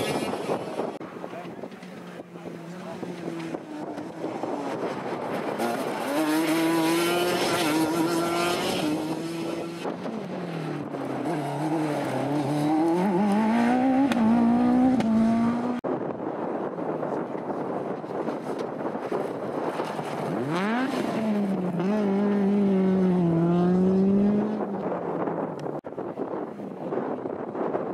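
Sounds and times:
road car engine: 0.0s - 15.8s, 16.8s - 25.8s
racing car engine revving: 2.7s - 10.2s, 10.8s - 15.8s.

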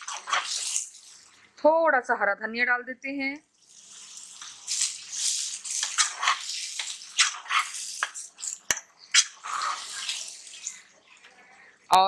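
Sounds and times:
spatula scraping paste in wok: 0.0s - 1.3s, 3.7s - 11.0s
paste frying: 0.0s - 1.6s, 3.5s - 11.8s.

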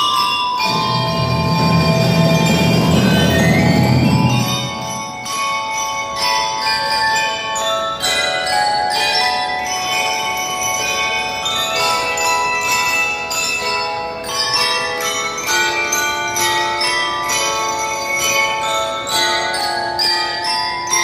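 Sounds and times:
bell lyres playing melody: 0.0s - 21.0s
band drums: 0.6s - 5.3s.

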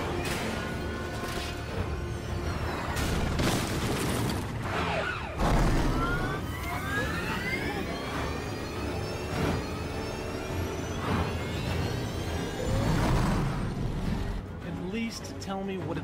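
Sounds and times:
car engine: 0.0s - 14.5s
film score music: 0.0s - 16.0s
police sirens wailing: 4.5s - 14.4s.

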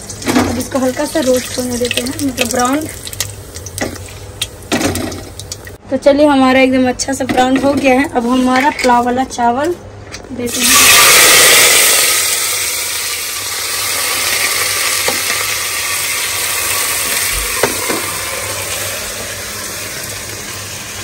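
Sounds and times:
rice sizzling in hot oil: 10.5s - 21.0s.

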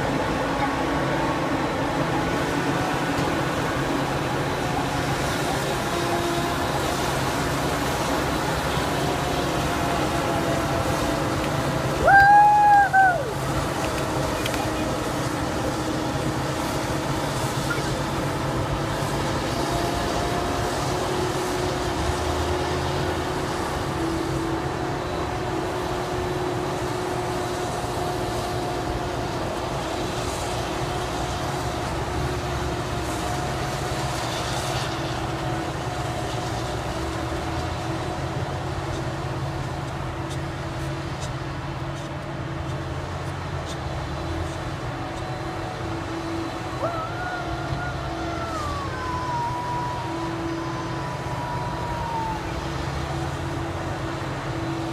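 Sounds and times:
forage harvester drone and whine: 0.0s - 54.9s
tractor running: 0.0s - 54.9s.

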